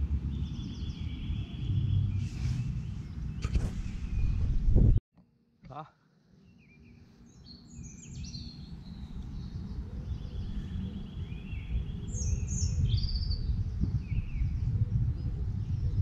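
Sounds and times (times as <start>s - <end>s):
birds chirping: 0.2s - 4.5s, 6.3s - 16.0s
low rumbling noise: 8.5s - 16.0s.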